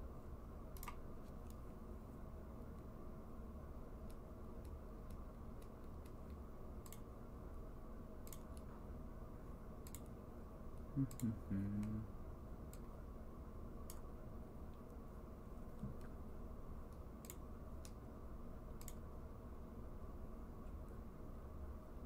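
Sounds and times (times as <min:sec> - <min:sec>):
steady low hum: 0:00.0 - 0:22.0
computer mouse or keyboard clicks: 0:09.8 - 0:10.1
short low hum: 0:10.7 - 0:13.4.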